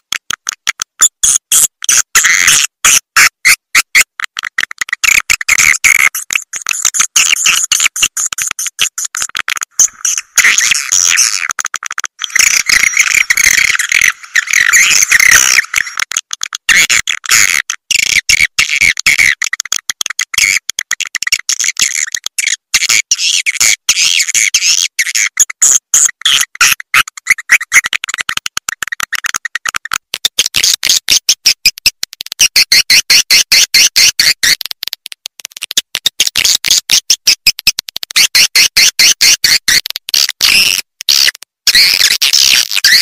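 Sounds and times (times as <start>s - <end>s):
swiftlets twittering and chirping: 12.2s - 16.0s.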